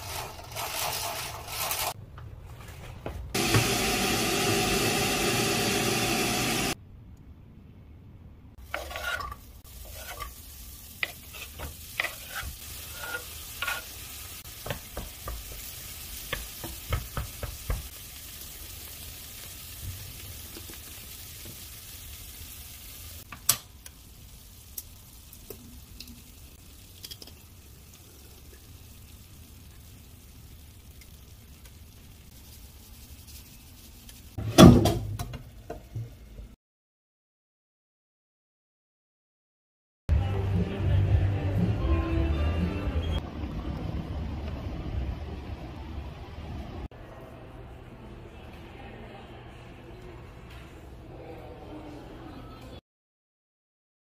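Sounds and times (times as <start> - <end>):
vegetables sizzling in a frying pan: 3.4 - 6.8, 8.6 - 34.4.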